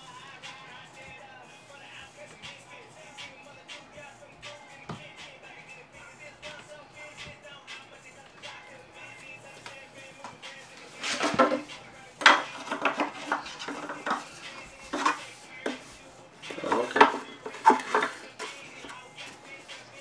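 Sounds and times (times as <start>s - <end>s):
dishes and cutlery clattering: 11.0s - 14.3s, 16.5s - 18.6s.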